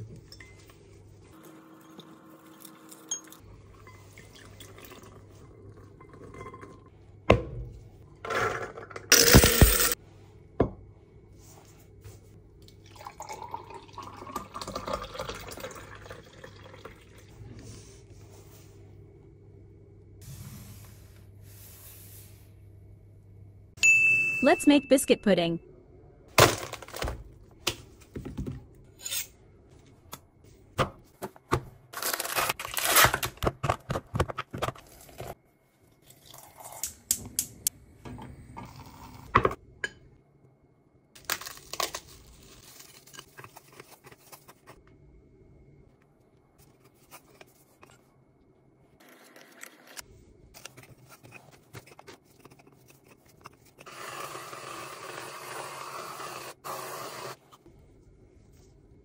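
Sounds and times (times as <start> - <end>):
packaging tearing and crinkling: 32.0 - 33.4, 41.2 - 42.6.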